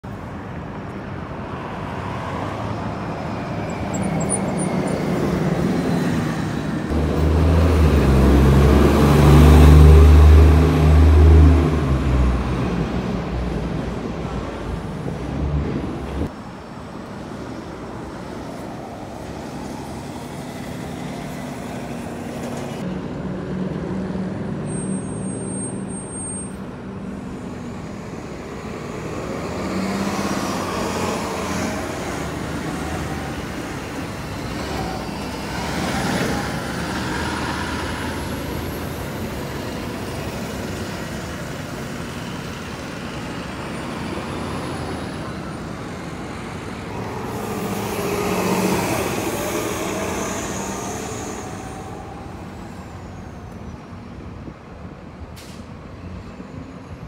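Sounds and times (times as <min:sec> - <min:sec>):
bus engine passing: 0:00.0 - 0:57.0
road traffic: 0:00.0 - 0:57.0
high whine rising in pitch: 0:46.6 - 0:53.8.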